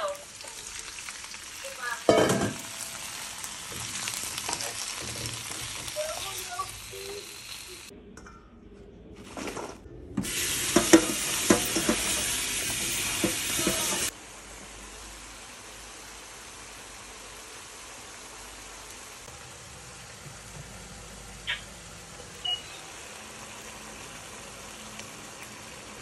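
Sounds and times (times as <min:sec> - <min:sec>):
food sizzling in a wok: 0:00.0 - 0:07.9, 0:10.2 - 0:26.0
wooden spatula scraping a wok: 0:10.5 - 0:14.1.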